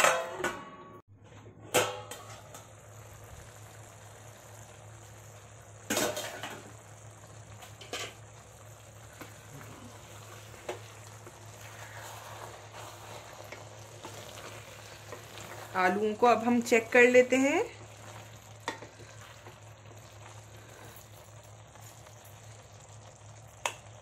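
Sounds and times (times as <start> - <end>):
curry simmering with pops: 1.7 - 24.0.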